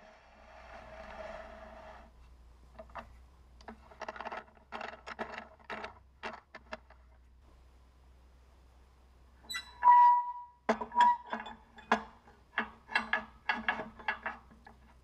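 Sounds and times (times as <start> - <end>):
metallic clicks and scrapes: 0.6 - 7.2, 9.5 - 15.0
faint hiss with hum: 7.2 - 9.5.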